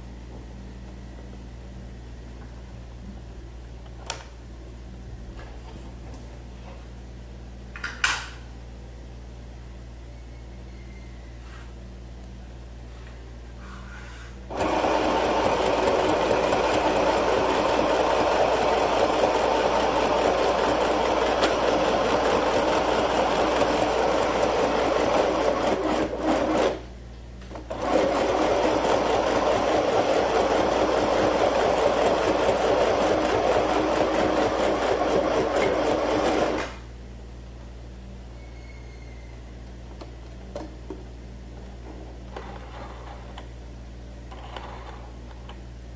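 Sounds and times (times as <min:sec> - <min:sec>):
sewing machine stitching: 0:14.5 - 0:26.8, 0:27.7 - 0:36.7.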